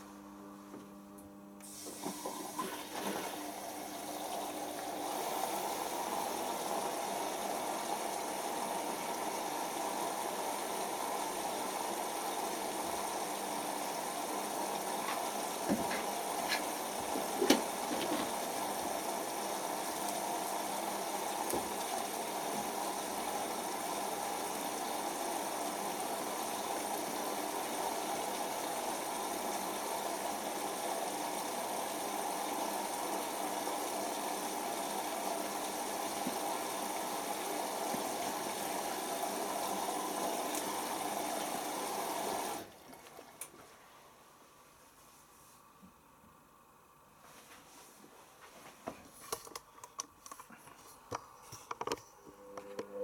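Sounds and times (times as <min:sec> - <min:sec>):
washing machine filling with water: 0:01.6 - 0:44.0.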